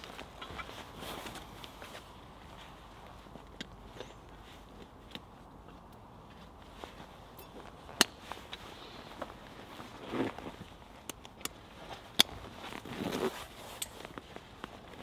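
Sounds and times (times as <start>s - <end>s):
straps and buckles clicking: 0.0s - 15.0s
wool and pack rustling: 11.6s - 15.0s.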